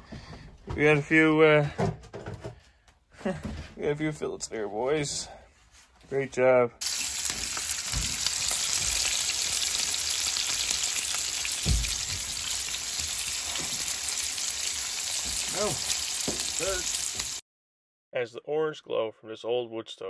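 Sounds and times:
fish sizzling in frying pan: 6.8s - 17.4s
dull knock: 11.6s - 12.3s.

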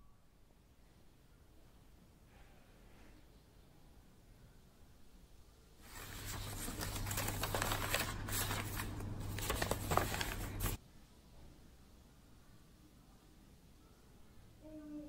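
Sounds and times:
paper rustling: 5.8s - 10.8s.

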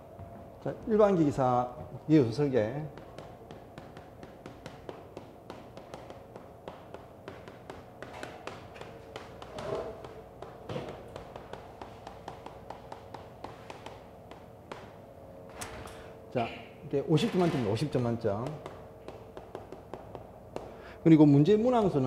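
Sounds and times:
chalk tapping on chalkboard: 2.8s - 15.0s, 18.3s - 20.9s.

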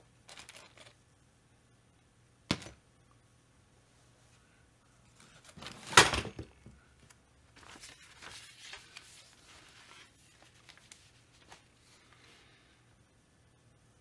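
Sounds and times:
small parts rattling: 0.2s - 1.0s.

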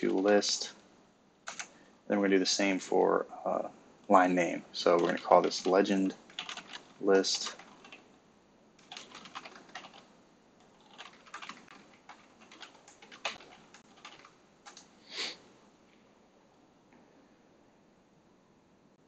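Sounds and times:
keyboard typing: 1.5s - 1.8s, 4.9s - 8.1s, 8.8s - 14.9s.

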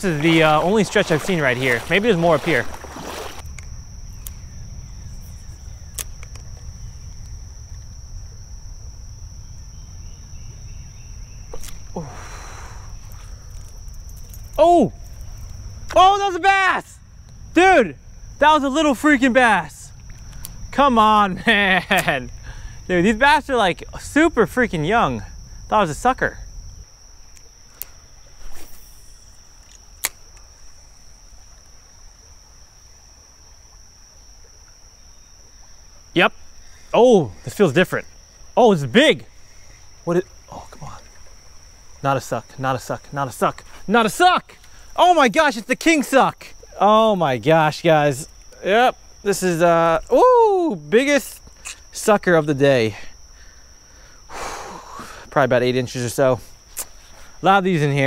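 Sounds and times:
insects droning: 0.0s - 58.0s
sharp click: 5.9s - 6.5s, 29.6s - 30.5s
sharp clicks: 5.9s - 6.5s.

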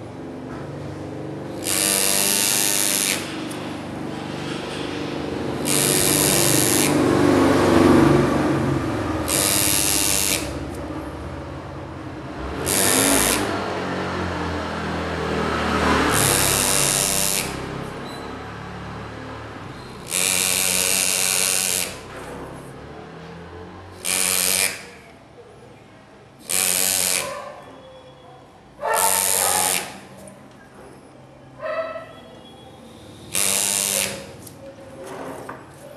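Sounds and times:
pneumatic engraver buzzing: 1.4s - 13.8s, 15.8s - 18.7s, 19.6s - 22.8s, 23.9s - 25.2s, 26.4s - 27.6s, 28.8s - 30.2s, 32.8s - 34.6s.

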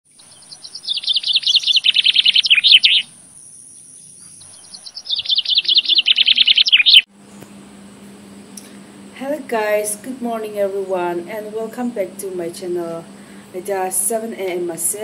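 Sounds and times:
songbird singing: 0.1s - 7.5s.

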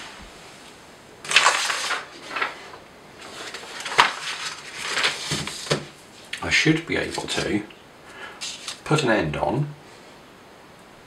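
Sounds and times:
paper rustling: 1.2s - 7.6s, 8.4s - 8.9s.

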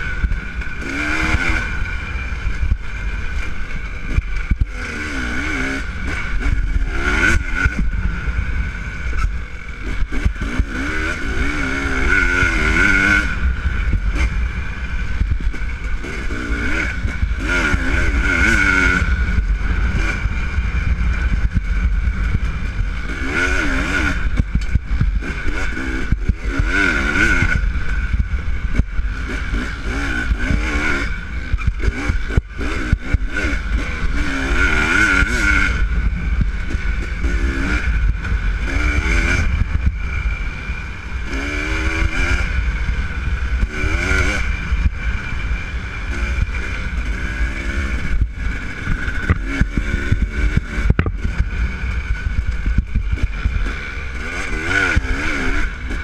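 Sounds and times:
dirt bike engine revving: 0.0s - 56.0s
low rumble: 0.0s - 56.0s.

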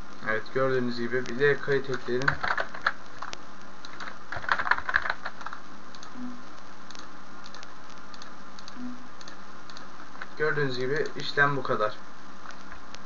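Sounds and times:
steady hiss: 0.0s - 13.0s
keyboard typing: 1.2s - 11.2s.

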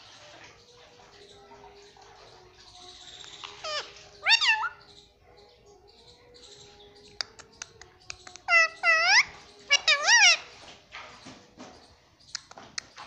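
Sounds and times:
parakeet calling: 2.3s - 7.1s, 8.1s - 10.6s.

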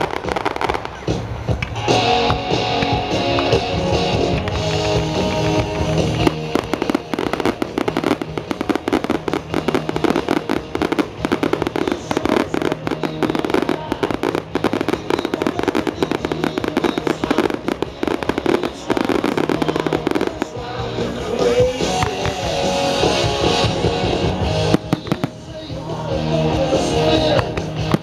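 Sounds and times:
fireworks crackling and popping: 0.0s - 28.0s
music playing: 0.0s - 28.0s.

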